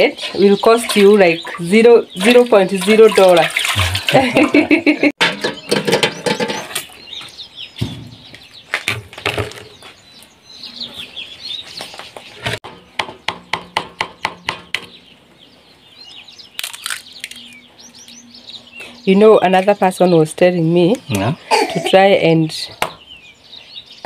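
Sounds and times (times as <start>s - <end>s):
faint birds chirping: 0.0s - 24.0s
eggs cracked against a bowl: 16.6s - 17.4s.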